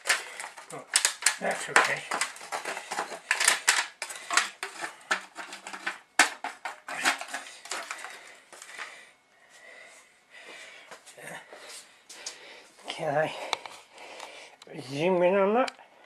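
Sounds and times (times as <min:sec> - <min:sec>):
fork scraping foil tray: 0:01.5 - 0:08.8.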